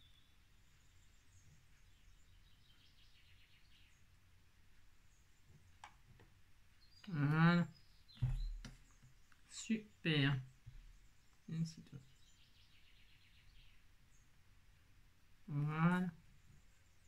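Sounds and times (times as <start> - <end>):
low thump: 8.2 - 8.8.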